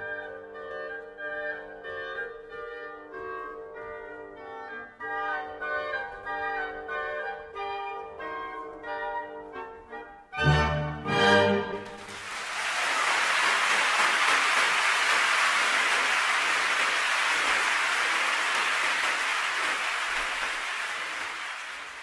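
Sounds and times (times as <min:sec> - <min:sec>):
audience applause: 0:11.8 - 0:22.0.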